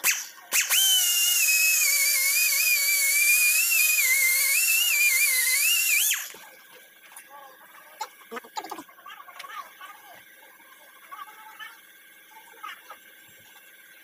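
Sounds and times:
pneumatic die grinder whine: 0.0s - 6.5s.

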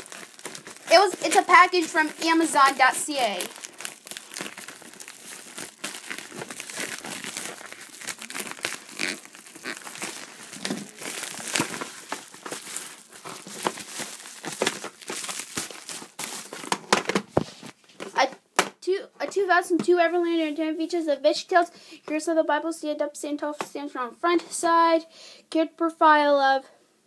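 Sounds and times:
packaging crinkling and crumpling: 0.0s - 17.8s.

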